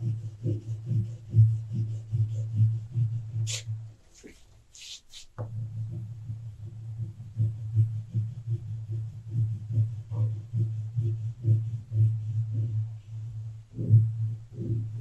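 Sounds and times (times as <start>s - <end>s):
crayon rubbing on paper: 0.0s - 5.4s.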